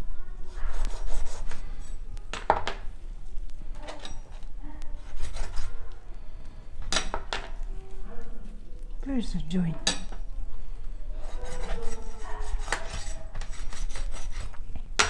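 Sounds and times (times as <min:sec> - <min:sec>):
knife sawing and scraping meat: 0:00.6 - 0:02.0, 0:05.0 - 0:05.8, 0:11.2 - 0:14.6.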